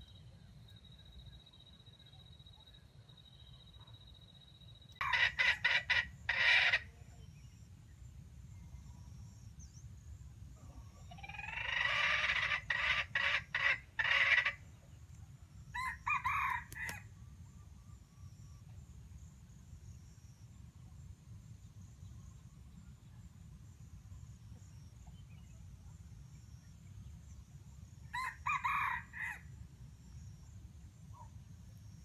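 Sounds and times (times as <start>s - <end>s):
rooster crowing: 15.8s - 17.1s, 28.1s - 29.5s.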